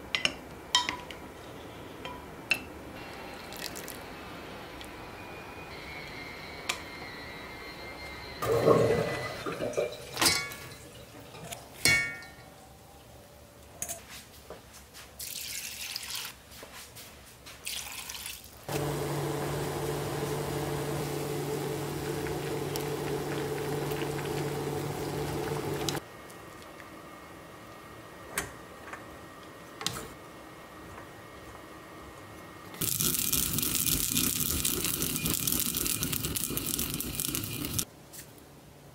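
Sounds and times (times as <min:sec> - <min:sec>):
water boiling with low hum: 0:03.0 - 0:05.0, 0:08.0 - 0:12.2, 0:17.7 - 0:37.9
splashes and clinks in pot: 0:08.6 - 0:12.5.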